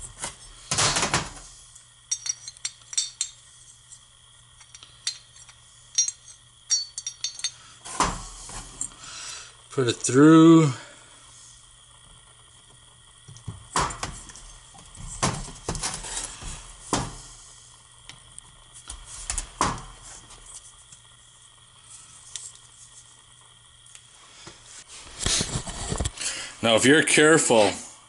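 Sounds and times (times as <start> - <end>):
metal parts knocking and clinking: 2.1 - 3.4, 4.6 - 7.6.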